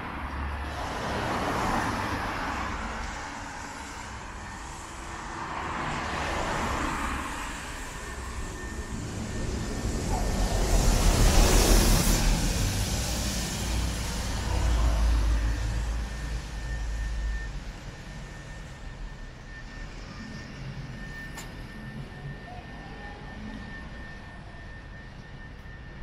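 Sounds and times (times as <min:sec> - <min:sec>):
bus engine rumbling: 0:00.0 - 0:24.5
traffic noise: 0:00.0 - 0:26.0
tyres hissing on wet road: 0:00.5 - 0:09.2, 0:09.8 - 0:16.6.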